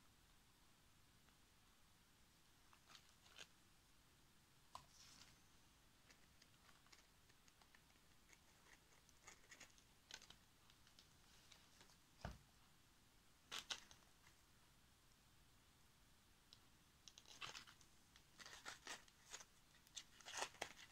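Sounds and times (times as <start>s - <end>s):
small crafting clicks and rustles: 2.7s - 3.6s, 6.0s - 12.3s, 13.5s - 14.4s, 16.5s - 20.9s.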